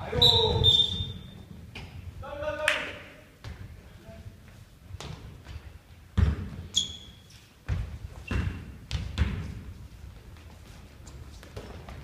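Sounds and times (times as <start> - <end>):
sneaker squeaks: 0.0 - 2.0, 6.2 - 9.6
basketball bouncing on hardwood: 6.2 - 6.6, 7.7 - 9.6.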